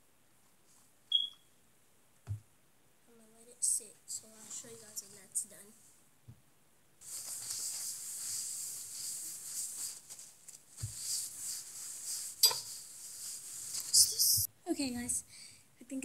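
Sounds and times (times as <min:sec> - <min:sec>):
hands rustling things: 0:07.0 - 0:14.5.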